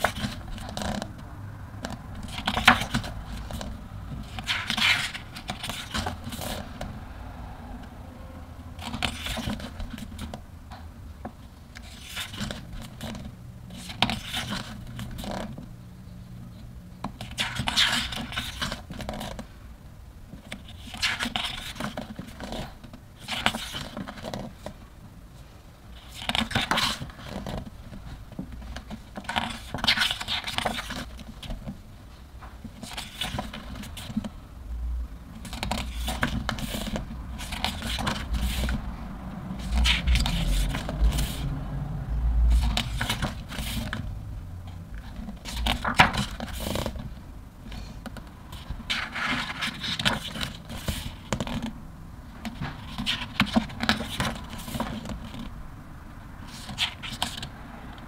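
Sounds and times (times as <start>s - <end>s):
book pages turning: 0.0s - 1.2s, 1.8s - 7.0s, 8.8s - 10.4s, 11.7s - 15.7s, 17.0s - 19.5s, 20.3s - 24.8s, 26.0s - 31.8s, 32.6s - 34.4s, 35.3s - 41.6s, 42.5s - 44.2s, 45.0s - 51.8s, 52.4s - 55.5s, 56.4s - 57.6s.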